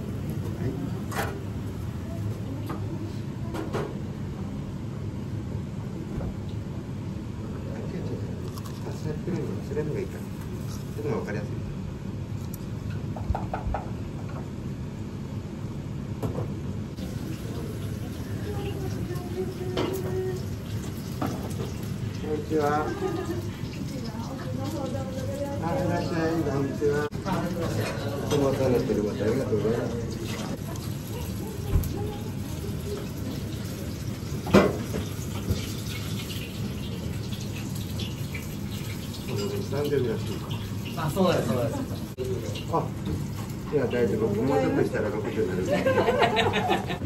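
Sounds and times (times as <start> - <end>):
low restaurant room rumble: 0.0 - 47.0
rushing kitchen noise: 16.9 - 47.0.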